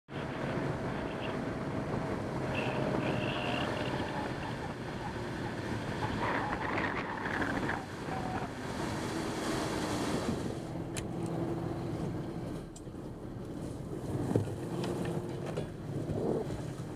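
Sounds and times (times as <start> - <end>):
boat motor hum: 0.1 - 16.9
water washing along hull: 0.1 - 16.9
wind on microphone: 0.2 - 12.5, 13.8 - 16.9.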